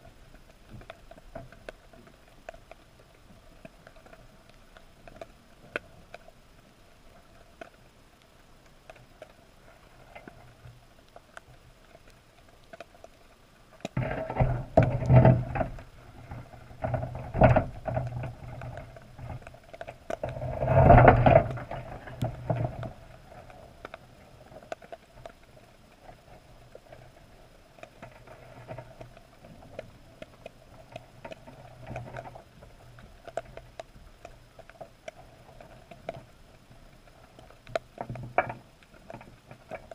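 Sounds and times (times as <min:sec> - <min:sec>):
low steady hum: 0:00.0 - 0:39.9
muffled underwater knocking and rattling: 0:13.9 - 0:24.0, 0:37.7 - 0:39.9.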